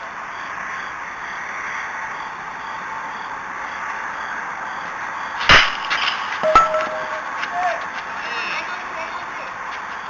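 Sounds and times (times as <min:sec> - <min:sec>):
steady background hiss: 0:00.0 - 0:09.6
bat cracking ball: 0:05.5 - 0:07.3.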